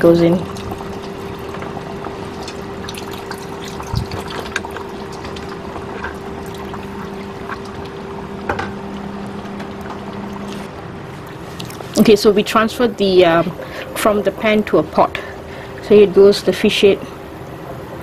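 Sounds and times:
steady hum: 0:00.0 - 0:18.0
liquid pouring into a pan: 0:00.4 - 0:08.1.

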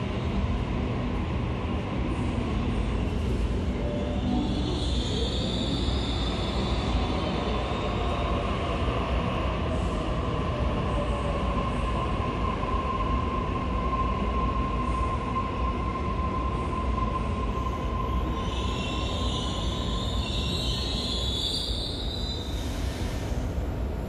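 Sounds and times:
electric train rumbling: 0:00.0 - 0:24.0.

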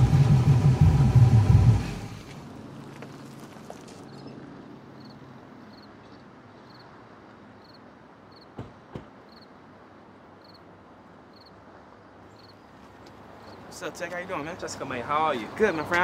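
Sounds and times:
car engine idling: 0:00.0 - 0:03.0.

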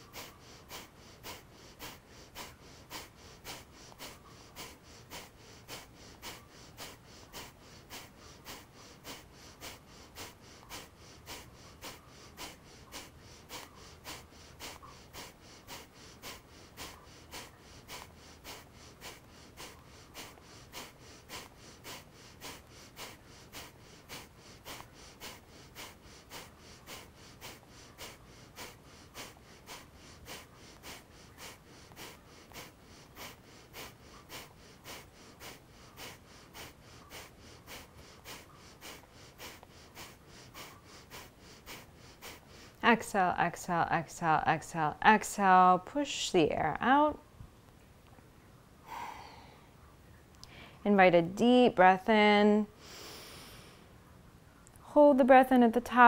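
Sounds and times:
forceful nasal exhales: 0:00.0 - 0:42.8, 0:52.8 - 0:53.9.

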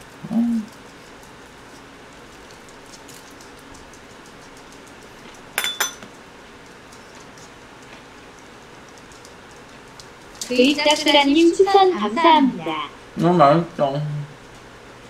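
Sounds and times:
person humming: 0:00.2 - 0:00.8
cutlery clinking against dish: 0:05.6 - 0:06.1.

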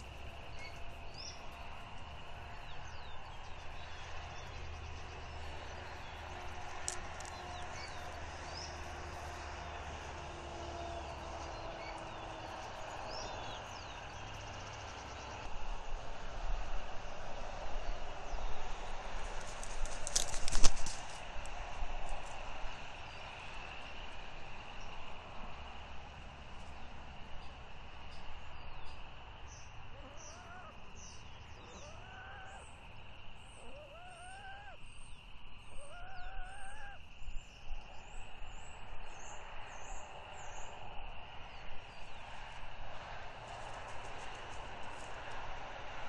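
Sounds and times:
songbirds chirping: 0:00.0 - 0:46.0
drawn-out rising bird calls: 0:29.9 - 0:35.1, 0:35.7 - 0:37.0.

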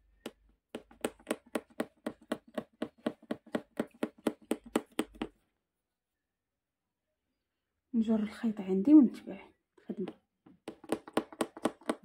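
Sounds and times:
needle tapping through fabric: 0:00.0 - 0:05.4.

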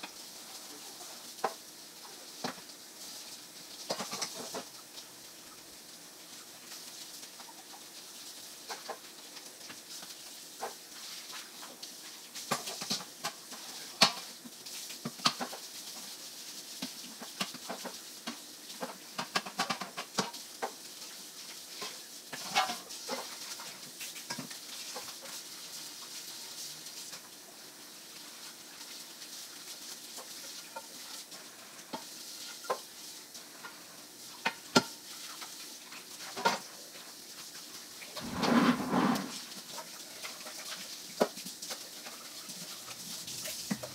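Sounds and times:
pans and dishes clinking: 0:22.4 - 0:23.4.

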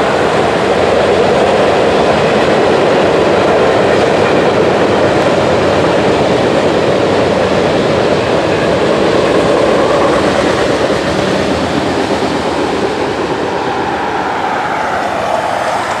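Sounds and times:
train wheels on rail: 0:00.0 - 0:16.0.

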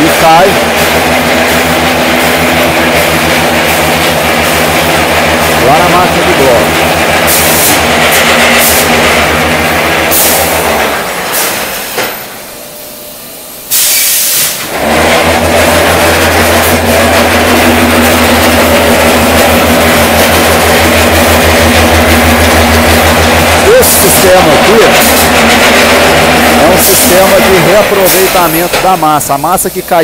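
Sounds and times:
machine mechanical hum: 0:00.0 - 0:30.0
short loud hiss: 0:13.7 - 0:14.7.

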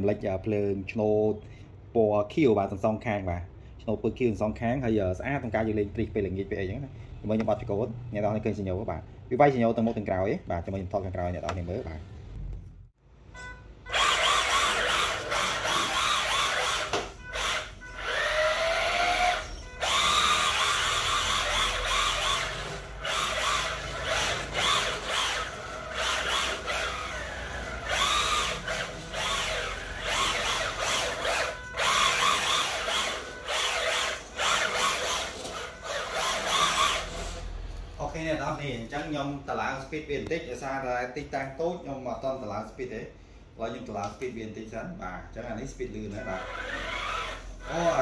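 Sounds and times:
electric motor whining: 0:13.9 - 0:37.5, 0:46.2 - 0:48.0.

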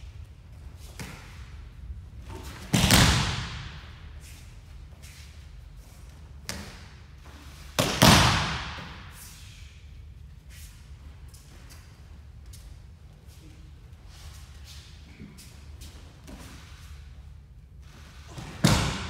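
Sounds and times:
bodies slapping on mats: 0:02.2 - 0:03.9, 0:18.3 - 0:19.0.

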